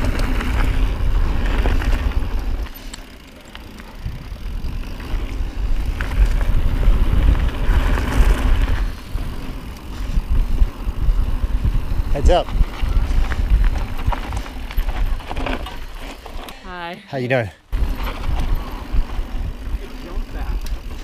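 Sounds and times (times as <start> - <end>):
wind buffeting microphone: 0.0 - 2.7, 3.9 - 16.0, 17.7 - 21.0
tyres crunching on dirt: 0.0 - 16.6
bike rattling: 0.0 - 21.0.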